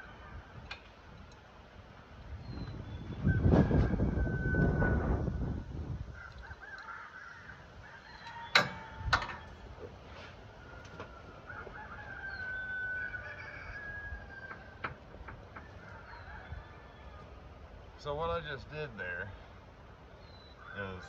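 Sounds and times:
sharp metallic knocks: 8.5 - 9.5.

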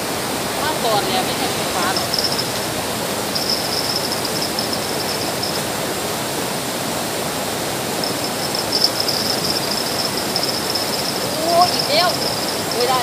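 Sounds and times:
river water flowing: 0.0 - 13.0
insects trilling: 1.0 - 5.9, 7.8 - 13.0.

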